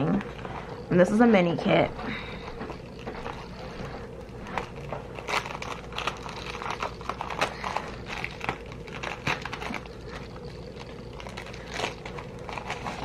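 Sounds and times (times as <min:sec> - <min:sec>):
sticker sheets and packaging crinkling: 0:02.7 - 0:13.0.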